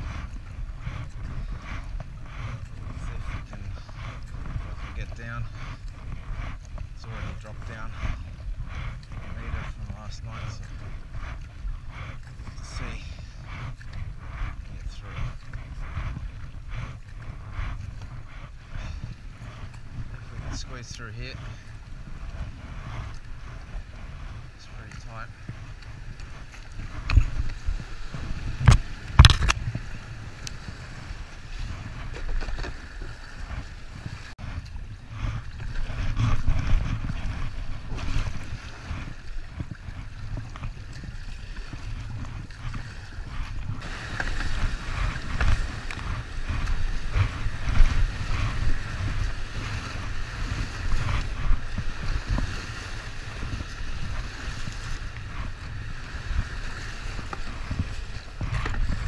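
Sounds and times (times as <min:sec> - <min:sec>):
water knocking against kayak hull: 0:25.3 - 0:30.1, 0:31.6 - 0:59.0
river rushing and splashing: 0:43.3 - 0:54.2.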